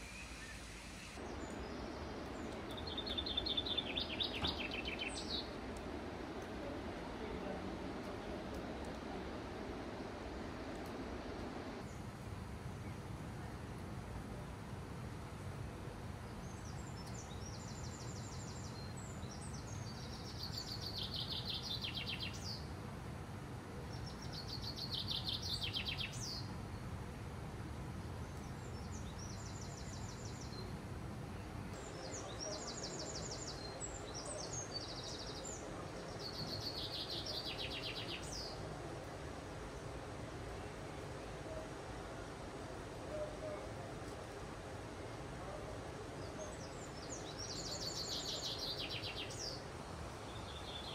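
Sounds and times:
low outdoor rumble: 0:01.2 - 0:20.2.

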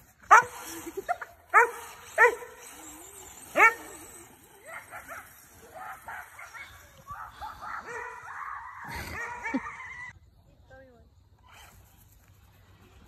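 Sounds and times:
dog barking: 0:00.3 - 0:00.6, 0:01.5 - 0:02.5, 0:04.7 - 0:08.4.

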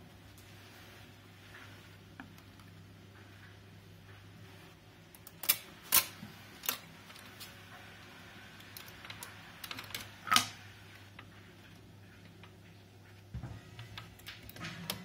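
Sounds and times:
steady low hum: 0:00.0 - 0:15.0
record changer clicks and clunks: 0:13.5 - 0:15.0.

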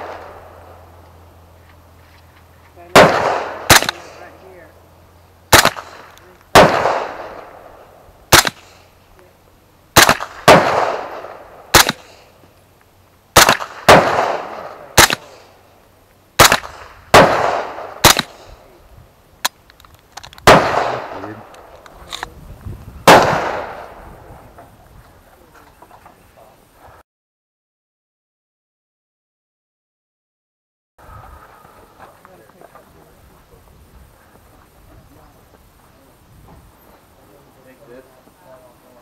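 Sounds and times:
rifle gunshots echoing: 0:00.0 - 0:01.0, 0:02.8 - 0:04.7, 0:05.5 - 0:08.8, 0:09.9 - 0:12.3, 0:13.4 - 0:15.6, 0:16.4 - 0:18.7, 0:20.4 - 0:22.2, 0:23.0 - 0:24.2
faint short gunshots: 0:02.9 - 0:04.3, 0:05.5 - 0:07.7, 0:08.3 - 0:08.8, 0:10.0 - 0:12.3, 0:13.4 - 0:15.5, 0:16.4 - 0:18.6, 0:20.4 - 0:21.5, 0:23.0 - 0:24.0.

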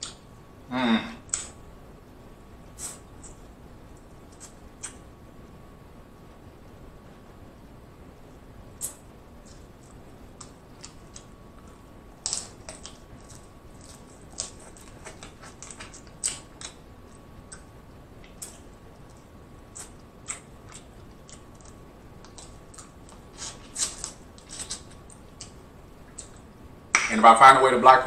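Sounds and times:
wet chewing and lip smacks: 0:08.8 - 0:26.5.

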